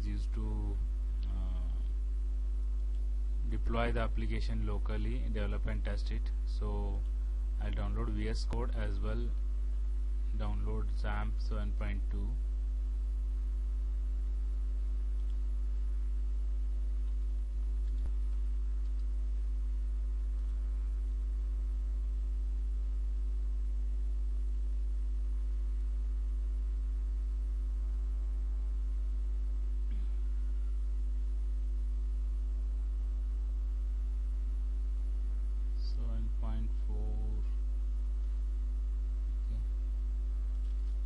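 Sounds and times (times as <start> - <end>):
low electrical hum: 0.0 - 41.0.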